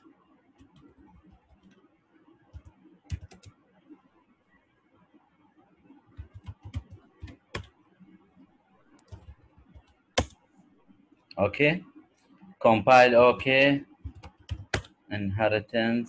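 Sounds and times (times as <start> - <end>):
laptop keyboard typing: 0.6 - 1.8, 2.5 - 3.6, 6.1 - 7.8, 9.0 - 10.4, 13.9 - 15.0.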